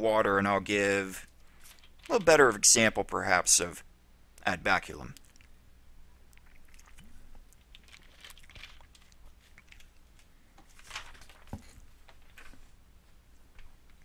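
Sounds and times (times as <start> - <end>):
person sipping water: 5.1 - 5.6, 6.2 - 10.1
mouth clicks: 6.3 - 7.2.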